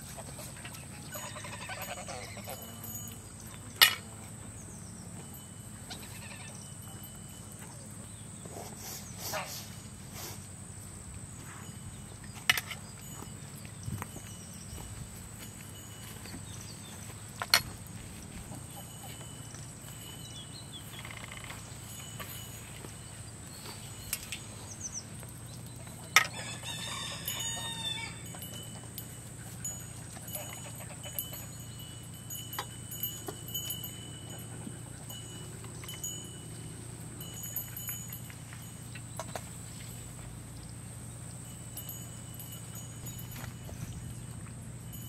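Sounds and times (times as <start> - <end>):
farmyard ambience: 0.0 - 45.0
rooster crowing: 26.2 - 28.4.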